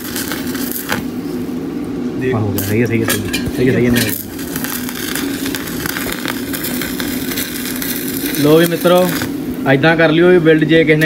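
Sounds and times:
arc welding crackling and hissing: 0:00.0 - 0:11.0
low hum: 0:01.0 - 0:09.7.

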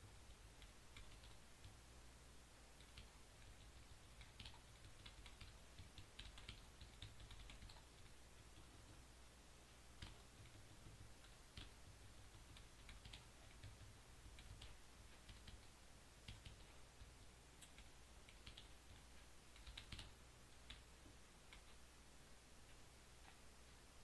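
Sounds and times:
low steady hum: 0:00.0 - 0:24.0
keyboard typing clicks: 0:02.8 - 0:09.0, 0:10.0 - 0:20.9, 0:21.5 - 0:21.8.

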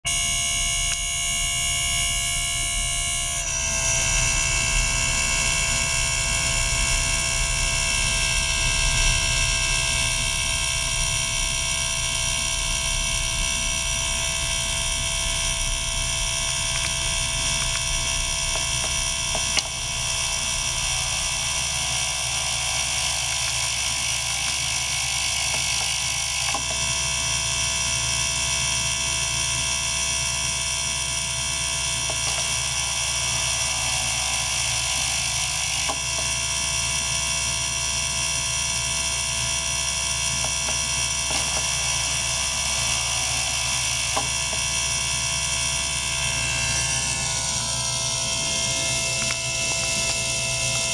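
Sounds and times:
ultrasonic cleaner buzzing whine: 0:00.0 - 0:50.9
low hum: 0:00.1 - 0:22.4.

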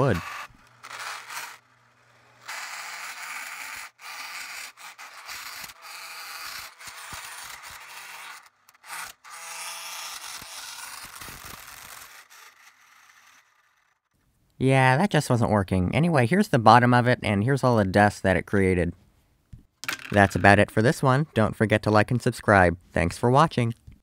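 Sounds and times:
saw blade grinding wooden stick: 0:00.0 - 0:11.2.

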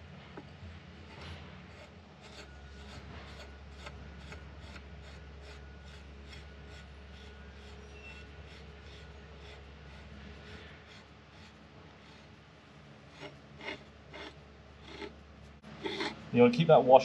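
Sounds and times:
low steady hum: 0:00.0 - 0:17.0
brush rubbing on threads: 0:01.7 - 0:12.4.

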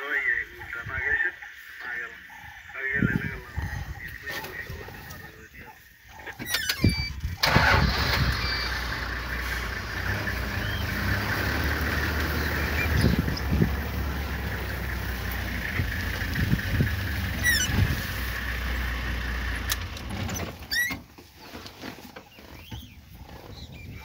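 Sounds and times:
vehicle engine idling: 0:00.0 - 0:20.9.

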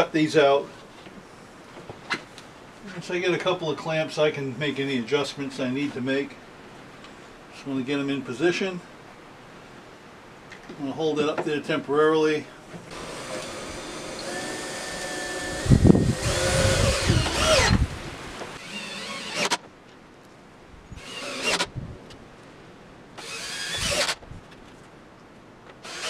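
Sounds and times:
cordless drill driving screws: 0:12.9 - 0:19.6, 0:21.0 - 0:21.7, 0:23.2 - 0:24.2.

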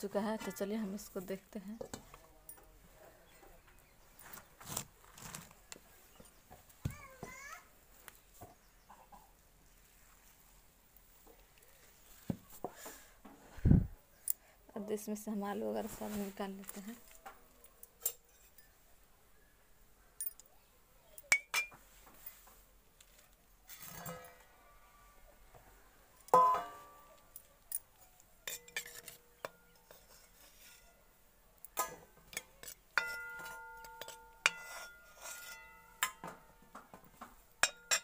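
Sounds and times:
steel ladle clinking on pot: 0:21.3 - 0:21.8, 0:26.3 - 0:27.0, 0:28.5 - 0:30.9, 0:31.7 - 0:36.7, 0:37.6 - 0:38.0.

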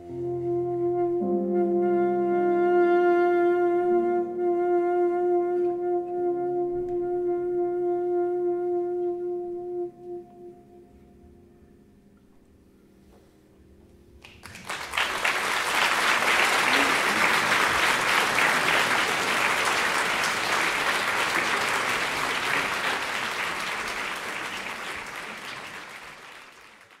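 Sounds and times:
audience applauding: 0:14.2 - 0:27.0.

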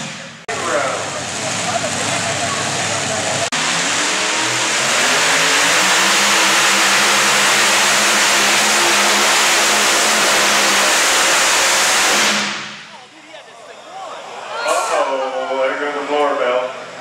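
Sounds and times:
truck engine at full throttle: 0:00.0 - 0:13.0.

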